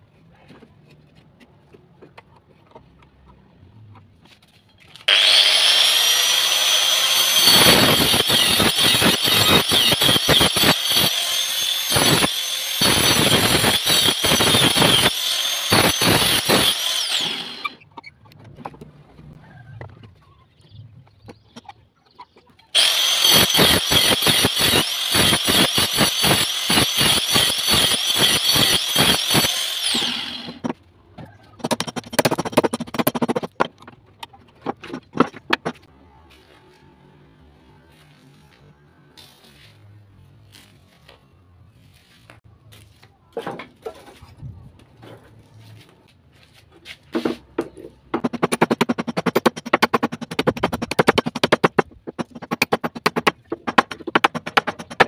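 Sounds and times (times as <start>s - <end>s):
angle grinder cutting wood: 5.0s - 17.8s, 22.8s - 30.8s, 48.1s - 55.0s.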